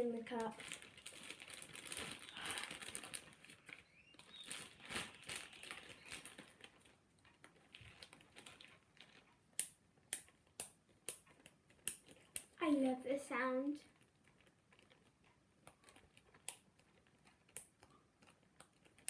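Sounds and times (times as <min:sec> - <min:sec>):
plastic bag crinkling: 0:00.0 - 0:09.5, 0:13.6 - 0:19.0.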